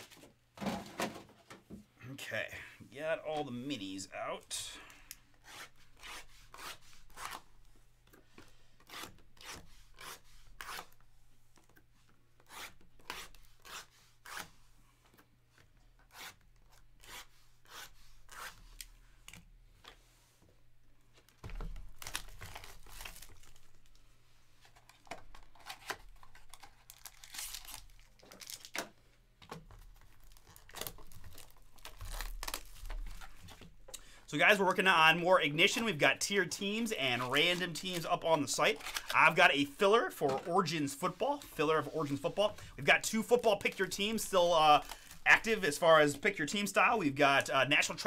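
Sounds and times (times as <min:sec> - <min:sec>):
plastic shrink-wrap tearing: 0:25.5 - 0:28.9, 0:30.0 - 0:33.4, 0:38.7 - 0:39.3, 0:43.6 - 0:45.6.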